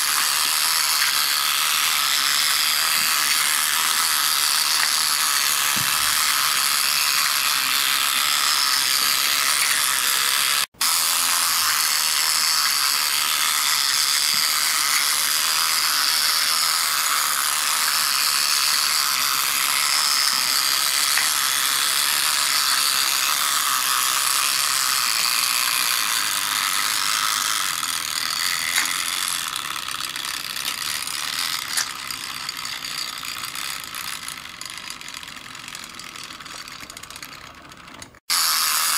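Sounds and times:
toy motor whirring and clicking: 0.0 - 38.9.

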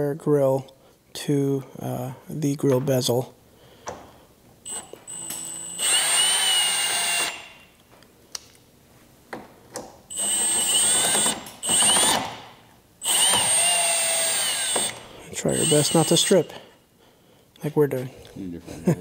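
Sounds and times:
cordless drill motor whining: 4.7 - 7.6, 10.1 - 12.4, 13.0 - 16.6.

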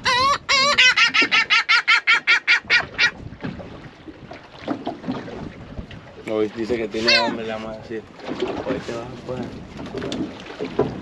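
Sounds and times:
seabird calling: 0.0 - 3.3, 6.7 - 7.8
sea wash: 0.0 - 11.0
wind: 0.0 - 11.0.

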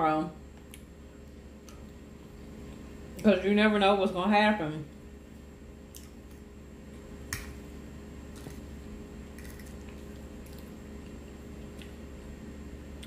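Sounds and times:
steady low hum: 0.0 - 13.0
faint squishing of food: 4.8 - 13.0.

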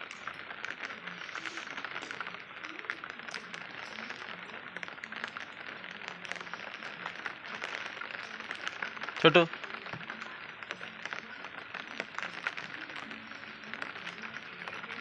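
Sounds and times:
drops ticking on hard surfaces: 0.0 - 15.0
rain falling: 0.0 - 15.0.

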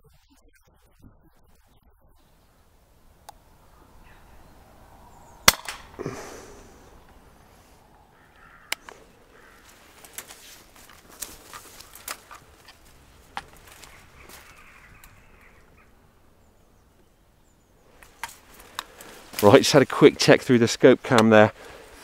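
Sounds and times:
air rifle shot: 5.4 - 6.0.

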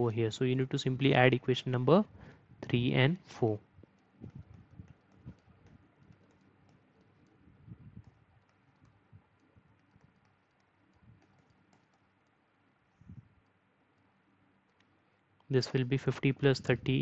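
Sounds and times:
stylus tapping on tablet screen: 3.8 - 12.4.

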